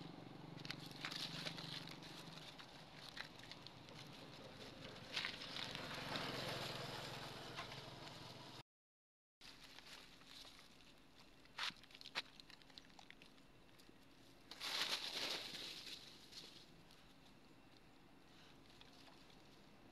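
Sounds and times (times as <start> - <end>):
faint low engine hum: 0.0 - 8.6, 9.4 - 19.9
dry leaves rustling and crackling: 0.6 - 6.8, 9.4 - 12.9, 14.2 - 17.0.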